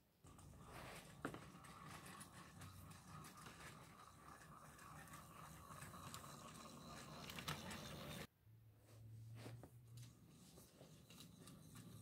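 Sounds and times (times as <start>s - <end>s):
toy train whirring and clicking: 1.4s - 8.3s, 10.8s - 12.0s.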